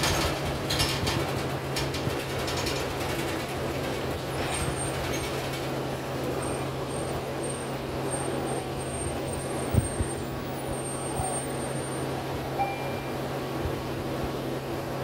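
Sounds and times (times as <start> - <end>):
bus engine hum: 0.0 - 15.0.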